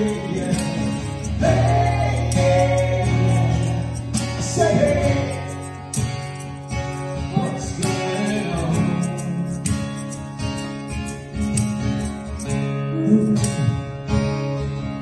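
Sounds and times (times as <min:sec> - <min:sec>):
person singing: 0:00.0 - 0:05.8, 0:07.3 - 0:10.1, 0:12.9 - 0:13.8
acoustic guitar strumming: 0:00.0 - 0:15.0.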